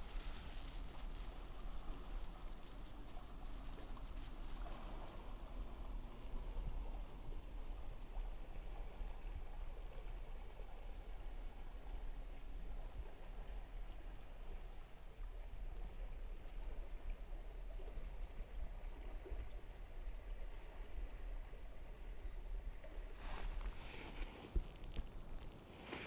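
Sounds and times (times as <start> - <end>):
footsteps in dry grass: 0.0 - 4.7, 23.2 - 26.0
low outdoor rumble: 0.0 - 25.8.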